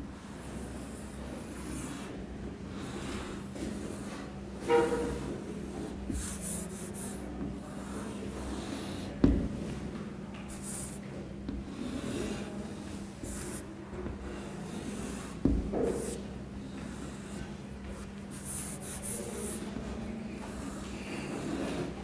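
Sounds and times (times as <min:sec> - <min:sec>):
chalk scratching on chalkboard: 0:00.4 - 0:09.2, 0:10.4 - 0:22.0
chalk tapping on board: 0:05.8 - 0:07.5, 0:13.2 - 0:21.8.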